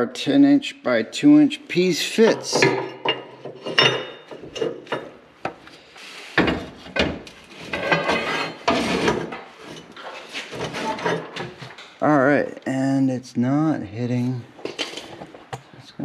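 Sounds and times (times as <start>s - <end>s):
metal clanks and knocks: 2.2s - 5.2s, 6.4s - 12.0s
metal scraping on metal: 7.4s - 11.6s.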